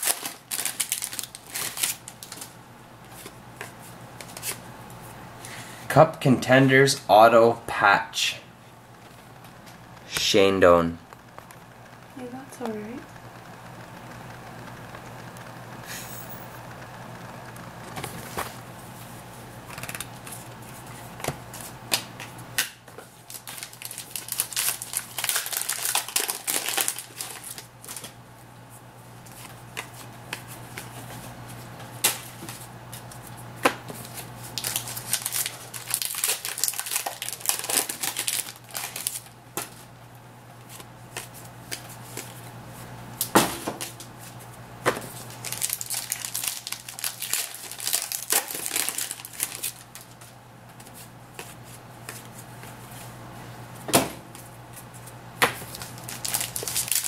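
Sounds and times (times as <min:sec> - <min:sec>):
card wrappers crinkling: 0:00.0 - 0:04.6, 0:23.0 - 0:28.2, 0:34.0 - 0:39.8, 0:45.1 - 0:52.8, 0:54.4 - 0:57.0
steady low hum: 0:00.2 - 0:57.0.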